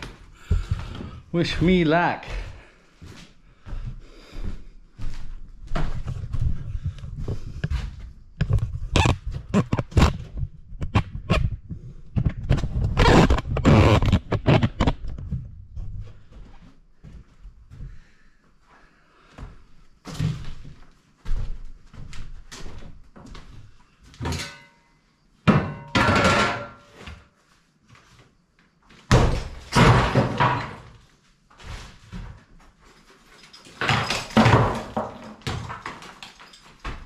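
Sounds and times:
plaster and rubble falling: 29.1s - 31.0s, 33.6s - 37.0s.

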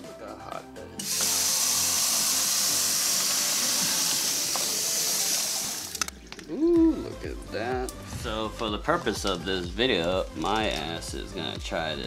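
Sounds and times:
water pouring into sink: 1.0s - 6.1s.

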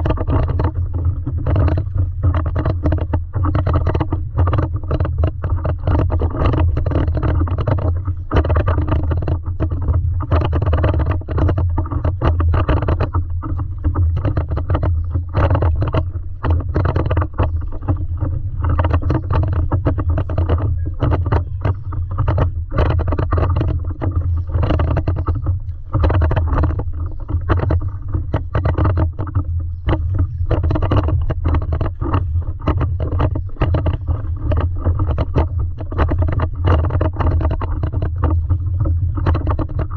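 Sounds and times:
low rumble: 0.0s - 39.9s
water sloshing against paddleboard: 0.0s - 39.9s.

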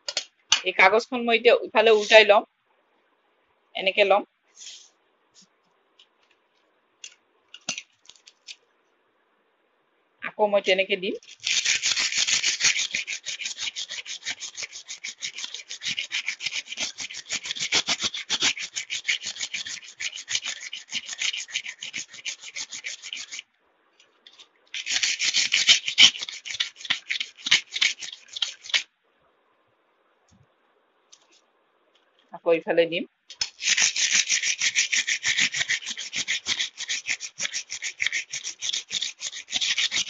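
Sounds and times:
abrasive paper scraping steel blade: 11.2s - 23.4s, 24.3s - 28.8s, 33.4s - 40.0s.

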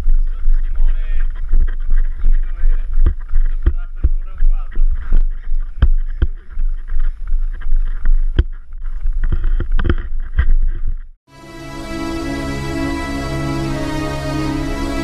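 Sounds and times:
camera knocks and thuds: 3.0s - 11.1s.

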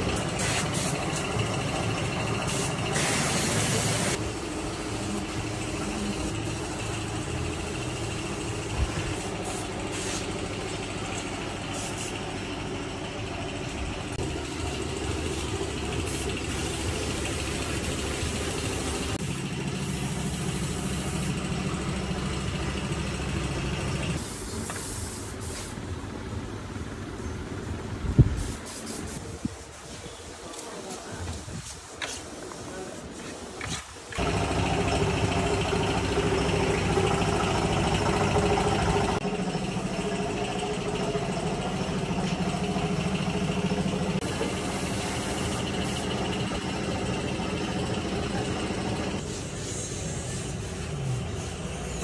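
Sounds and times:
workshop machinery drone: 0.0s - 52.0s
loud hiss of air: 0.4s - 1.2s, 2.4s - 4.2s, 9.1s - 10.4s, 14.2s - 21.6s, 24.2s - 25.9s, 28.1s - 30.4s, 44.2s - 46.2s, 49.2s - 52.0s.

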